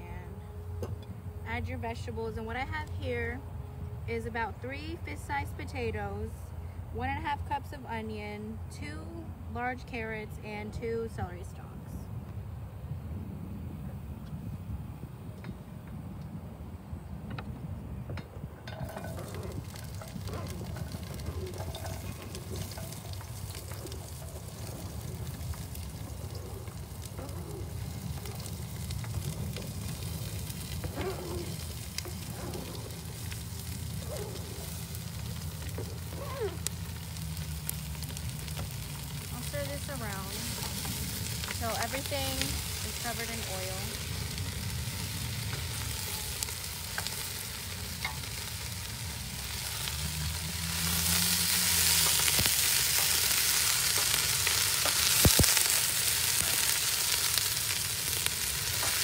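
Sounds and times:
vegetables sizzling in hot oil: 18.7 - 59.0.

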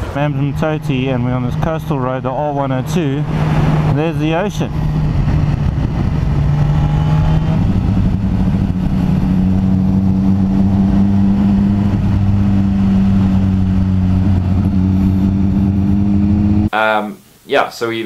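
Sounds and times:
motorcycle engine running: 0.0 - 16.7
wind on microphone: 0.0 - 16.7.

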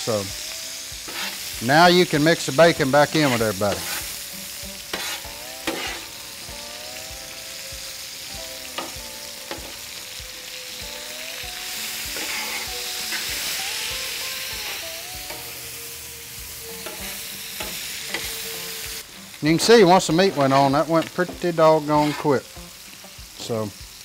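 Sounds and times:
meat sizzling on griddle: 0.0 - 24.0
metal spatula scraping and tapping: 1.1 - 1.4, 3.1 - 4.1, 4.8 - 6.0, 16.8 - 18.3, 20.2 - 22.3.

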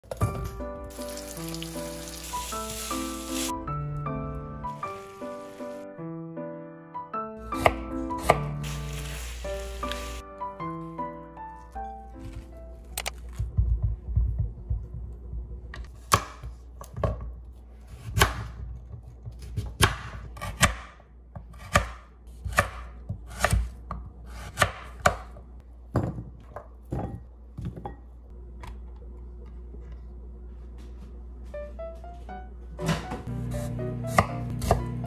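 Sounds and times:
knife chopping squash on board: 16.0 - 17.2, 17.9 - 18.6, 19.2 - 25.4, 34.1 - 34.9.

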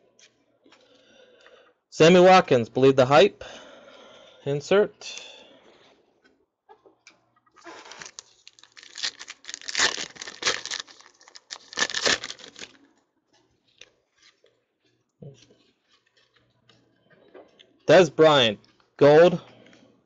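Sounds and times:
foil wrapper tearing and crinkling: 7.6 - 12.9.

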